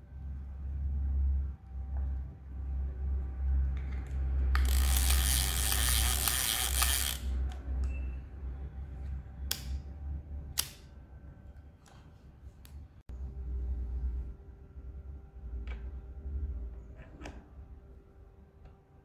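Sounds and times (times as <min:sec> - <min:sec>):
camera ratcheting clicks: 0:04.5 - 0:07.3.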